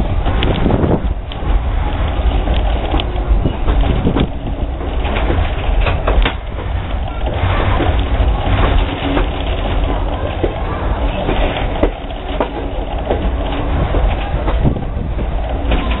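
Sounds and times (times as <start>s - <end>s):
train wheels rumbling on rail: 0.0s - 16.0s.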